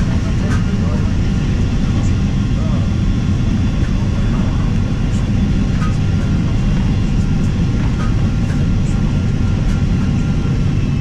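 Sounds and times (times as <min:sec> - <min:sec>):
airliner cabin rumble: 0:00.0 - 0:11.0.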